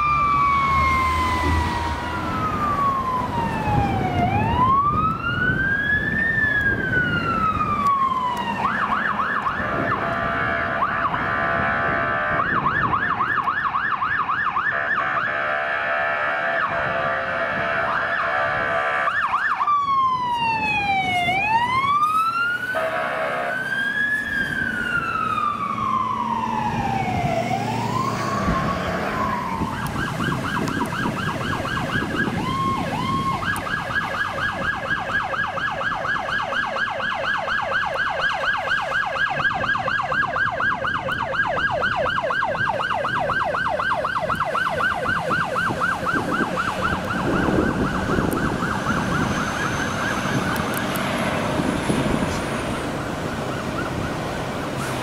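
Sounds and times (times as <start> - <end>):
electronic siren wail and yelp: 0.0 - 54.8
siren chirps: 0.0 - 55.0
fire truck horn blast: 1.0 - 2.6, 9.7 - 12.8, 14.6 - 19.4, 22.8 - 23.9.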